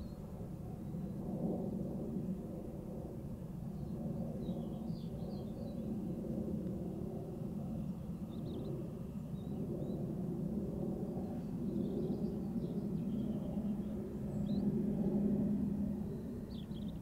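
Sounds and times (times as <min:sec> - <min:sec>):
steady low rumble: 0:00.0 - 0:09.0.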